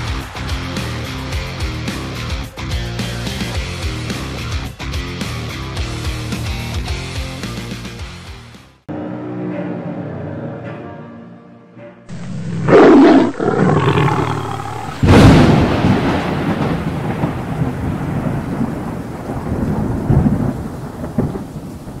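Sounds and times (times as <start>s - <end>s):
thunder rumbling: 12.1s - 22.0s
thunder crack: 13.8s - 22.0s.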